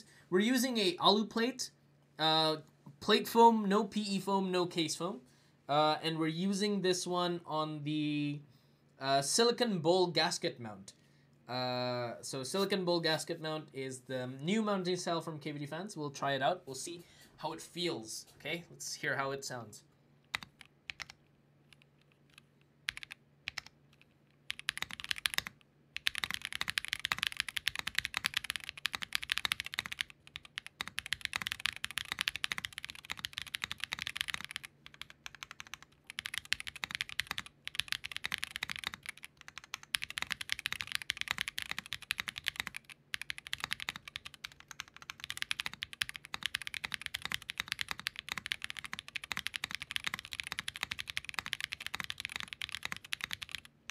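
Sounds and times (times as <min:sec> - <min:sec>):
mechanical keyboard typing: 0:20.3 - 0:53.9.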